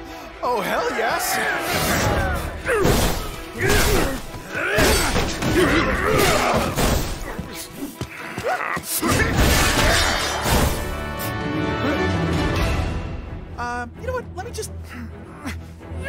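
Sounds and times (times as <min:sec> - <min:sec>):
action soundtrack music: 0:00.0 - 0:16.0
crashing smashing impacts: 0:01.8 - 0:07.2.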